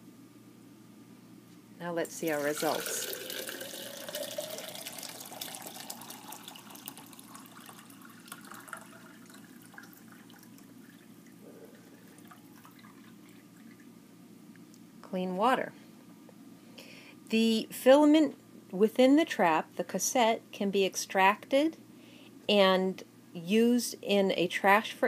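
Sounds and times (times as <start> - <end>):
water pouring into a glass: 2.1 - 13.9.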